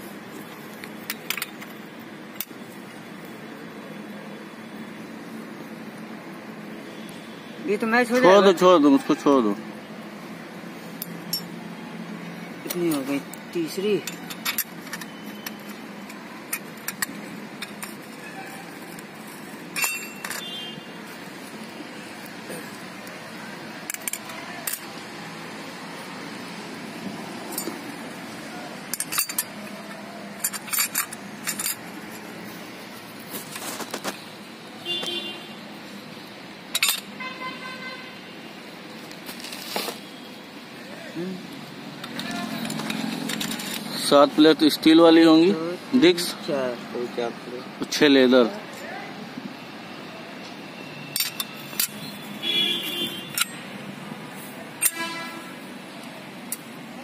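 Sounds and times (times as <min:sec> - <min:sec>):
metal clutch plates clinking: 0:12.7 - 0:18.2, 0:19.7 - 0:20.6, 0:28.9 - 0:32.3, 0:36.7 - 0:37.2, 0:42.0 - 0:44.2, 0:51.1 - 0:53.7, 0:54.8 - 0:55.2
metal ringing: 0:19.7 - 0:20.6.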